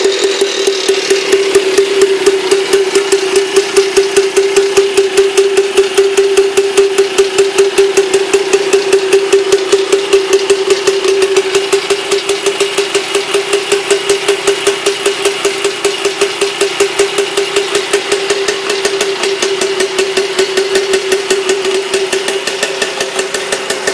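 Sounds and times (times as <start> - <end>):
single-cylinder engine idling: 0.0 - 23.9.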